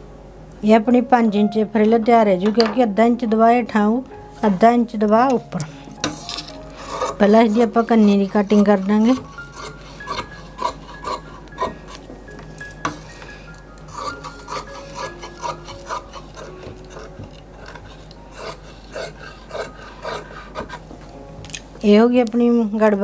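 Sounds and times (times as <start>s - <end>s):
shears snipping fabric: 5.6s - 12.0s, 13.9s - 20.8s.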